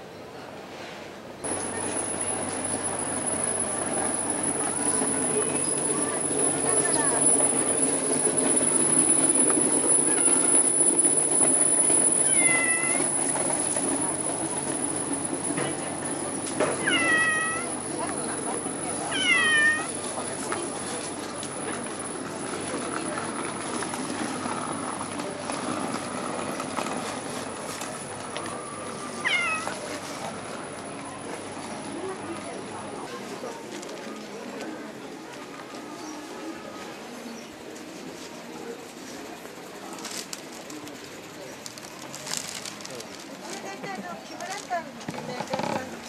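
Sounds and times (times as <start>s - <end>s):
cat meowing: 10.1s - 10.5s, 12.2s - 13.1s, 16.8s - 17.8s, 19.1s - 20.0s, 29.2s - 29.8s.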